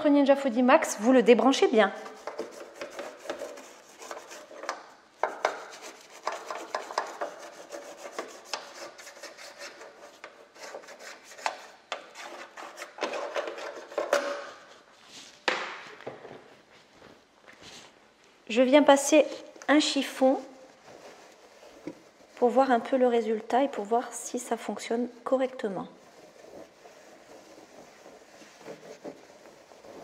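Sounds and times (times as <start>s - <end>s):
toothbrush scrubbing a grille: 2.0s - 14.0s, 26.0s - 30.0s.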